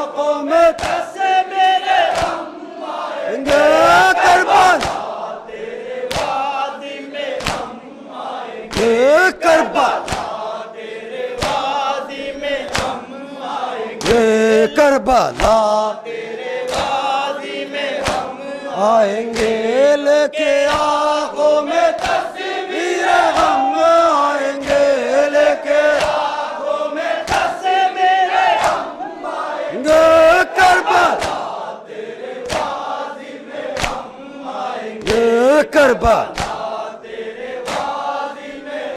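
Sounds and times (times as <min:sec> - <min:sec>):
men chanting in unison: 0:00.0 - 0:38.9
hand slaps on chest: 0:00.7 - 0:01.1, 0:02.1 - 0:02.4, 0:04.7 - 0:05.1, 0:06.1 - 0:06.4, 0:07.4 - 0:07.7, 0:10.0 - 0:10.4, 0:11.4 - 0:11.7, 0:12.7 - 0:13.0, 0:16.7 - 0:17.0, 0:18.0 - 0:18.3, 0:19.4 - 0:19.6, 0:20.7 - 0:21.0, 0:22.0 - 0:22.3, 0:23.3 - 0:23.7, 0:25.9 - 0:26.3, 0:27.2 - 0:27.5, 0:28.6 - 0:28.9, 0:31.0 - 0:31.5, 0:32.4 - 0:32.8, 0:33.8 - 0:34.1, 0:36.3 - 0:36.7, 0:37.6 - 0:38.0.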